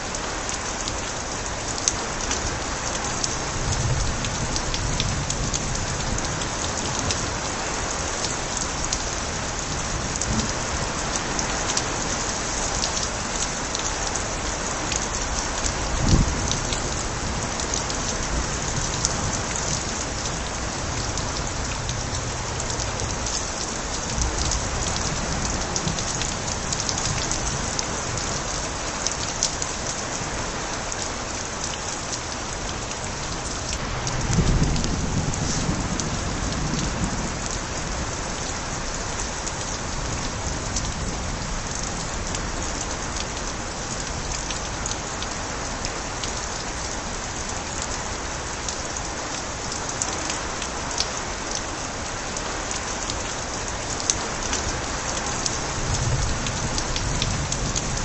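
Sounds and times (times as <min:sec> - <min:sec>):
steady rain: 0:00.0 - 0:58.0
low rumble of thunder: 0:09.4 - 0:11.4, 0:15.7 - 0:28.3, 0:33.8 - 0:38.5, 0:55.6 - 0:58.0.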